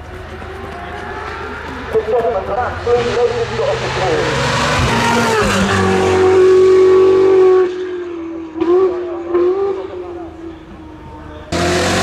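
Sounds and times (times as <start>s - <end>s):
sports car accelerating hard: 0.6s - 10.4s, 11.5s - 12.0s
engine revving burst: 2.8s - 7.7s, 11.5s - 12.0s.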